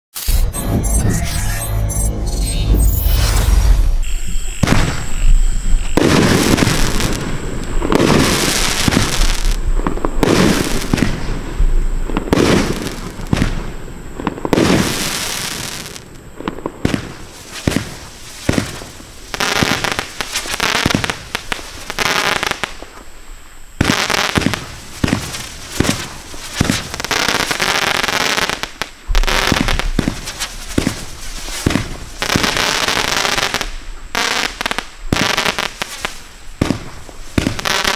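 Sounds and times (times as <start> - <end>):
fireworks lifting off and bursting: 0.1 - 37.9
quick sharp firework cracks: 23.8 - 27.1, 29.1 - 33.8.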